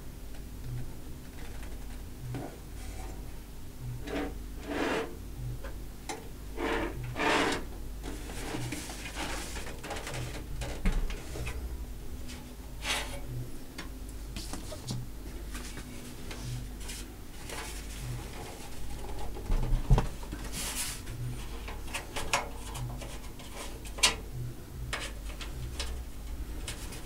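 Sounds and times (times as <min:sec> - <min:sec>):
faint low hum: 0:00.0 - 0:27.0
rustling and scraping metal panel: 0:04.0 - 0:05.2, 0:06.6 - 0:13.4, 0:14.4 - 0:24.3, 0:24.9 - 0:27.0.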